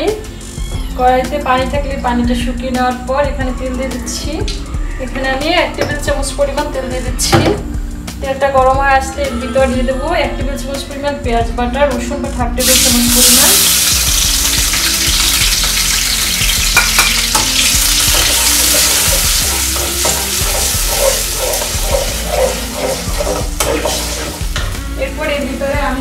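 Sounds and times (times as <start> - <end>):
paste sizzling in hot oil: 12.6 - 26.0
metal spatula scraping pan: 16.7 - 24.6.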